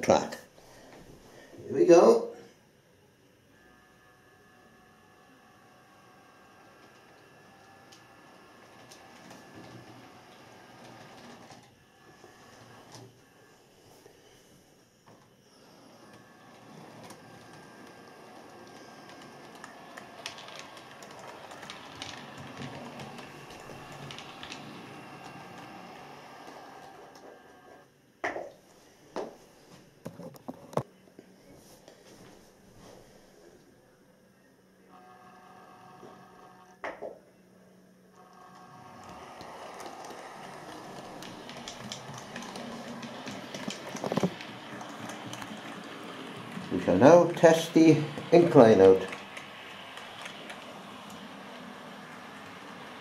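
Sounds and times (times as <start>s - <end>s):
model train motor whirr: 3.6s - 13.5s, 15.5s - 27.8s, 38.2s - 53.0s
wheels clicking on track: 16.6s - 27.2s, 38.9s - 53.0s.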